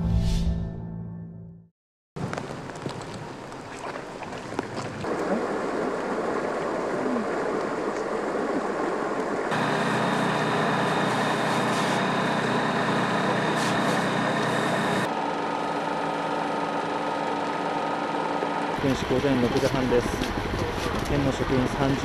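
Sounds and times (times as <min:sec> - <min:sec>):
high whine: 0:09.5 - 0:22.0
machinery humming: 0:09.5 - 0:22.0.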